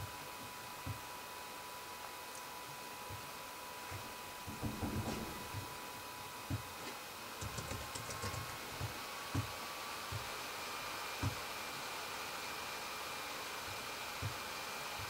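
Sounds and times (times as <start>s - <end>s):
typing on computer keyboard: 7.4s - 8.6s.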